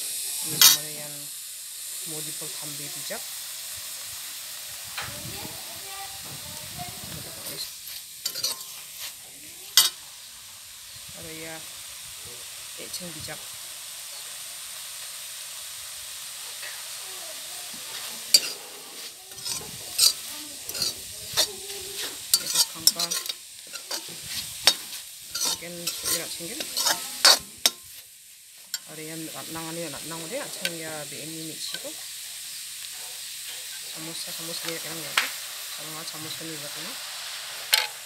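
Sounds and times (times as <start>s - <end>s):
food sizzling in a wok: 0.0s - 38.0s
metal ladle scraping wok: 0.5s - 1.0s, 7.3s - 10.0s, 17.8s - 30.9s, 37.5s - 38.0s.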